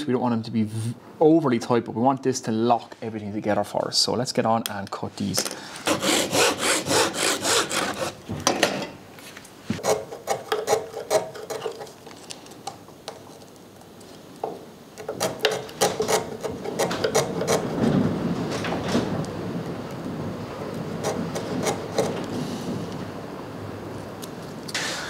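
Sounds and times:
chisel scraping wood: 5.8 - 8.2, 9.7 - 12.3, 15.0 - 17.8, 20.9 - 22.3
hand saw cutting wood: 5.8 - 8.2, 9.8 - 12.0, 15.0 - 17.8, 21.0 - 22.2.

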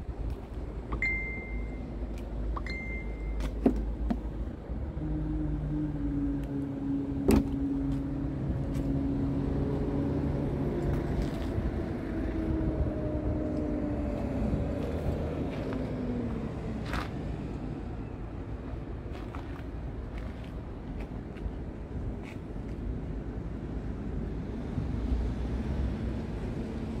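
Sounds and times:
vehicle engine droning: 0.0 - 21.2.

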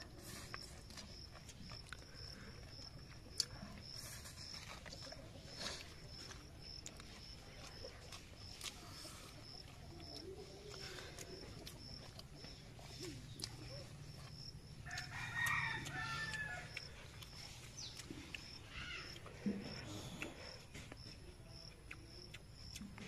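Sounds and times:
rooster crowing: 14.8 - 16.8.

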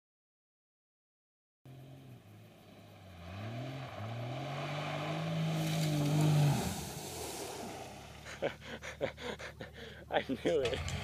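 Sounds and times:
car engine accelerating: 1.7 - 8.7, 10.6 - 11.0
tyres throwing loose dirt: 2.8 - 9.6, 10.2 - 11.0.

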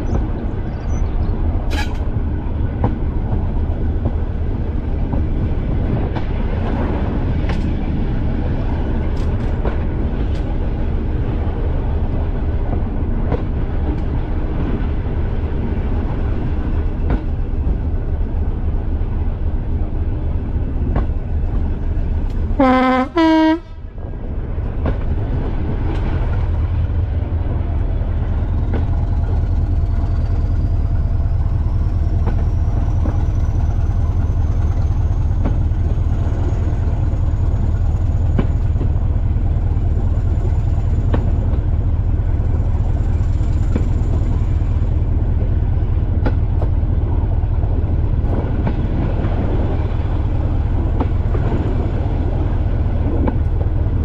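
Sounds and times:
two-tone train horn: 1.7 - 2.0, 22.6 - 23.9
wheel clicks on rail joints: 8.9 - 15.0.

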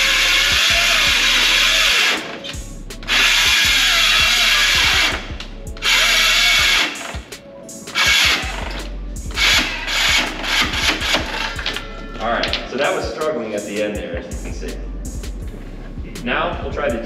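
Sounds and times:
circular saw cutting wood: 0.0 - 7.3, 9.4 - 11.7.

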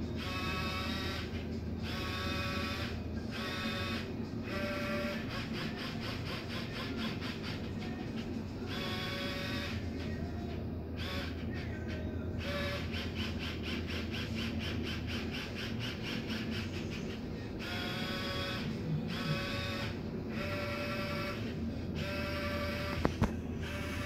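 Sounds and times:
small motor whirring: 0.2 - 8.0, 11.0 - 11.5, 12.4 - 24.0.

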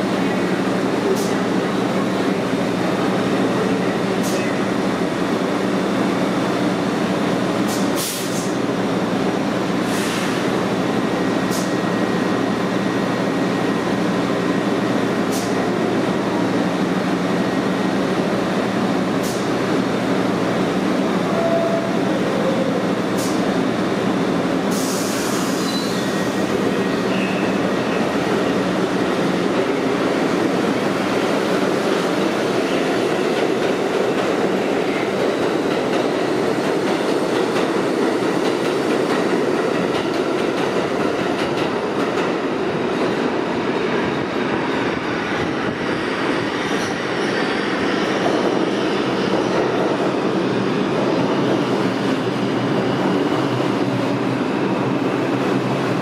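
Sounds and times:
subway train rumbling: 0.0 - 56.0.

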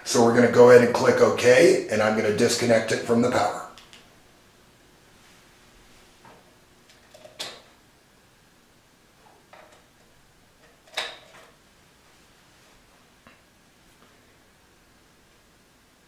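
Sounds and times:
sharp clicks: 3.8 - 4.1.

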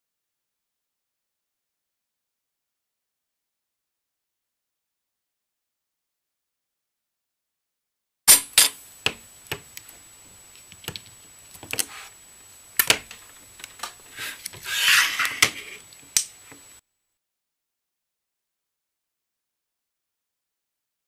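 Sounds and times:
plastic scraping rustle: 14.1 - 15.8.

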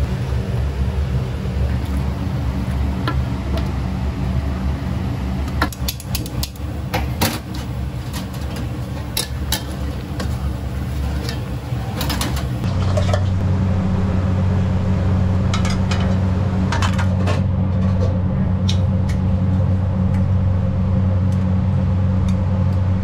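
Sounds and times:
gas burner rumbling: 0.0 - 23.0
metal lid clanking: 11.1 - 13.4.

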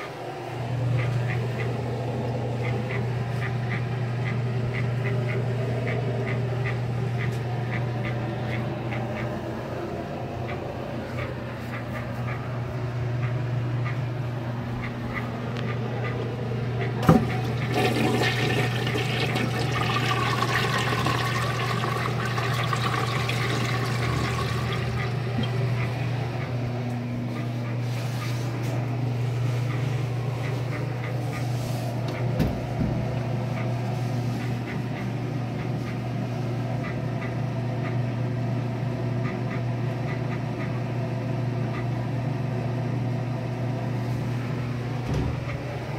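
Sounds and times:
steady low hum: 0.0 - 45.9
water running as tank refills: 17.0 - 25.8
toilet flushing: 17.0 - 25.9.

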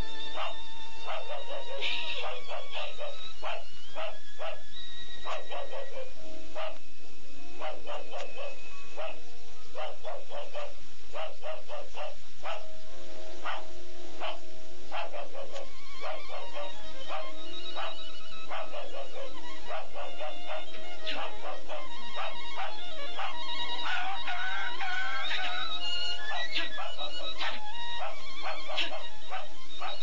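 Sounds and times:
dog barking: 0.4 - 6.8, 7.6 - 9.2, 9.8 - 12.7, 13.4 - 30.0.

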